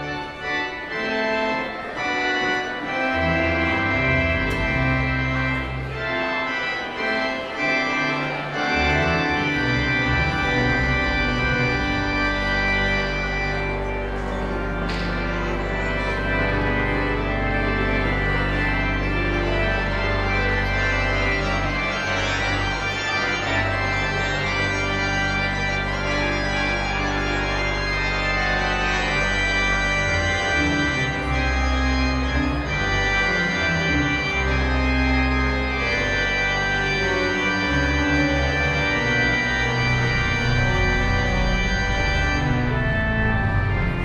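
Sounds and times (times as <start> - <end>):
organ playing held chords: 0.0 - 44.0.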